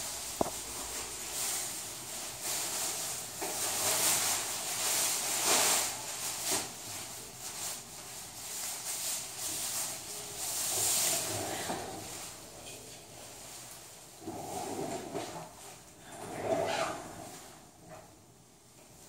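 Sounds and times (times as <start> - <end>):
rustling and handling noise: 0.0 - 19.0.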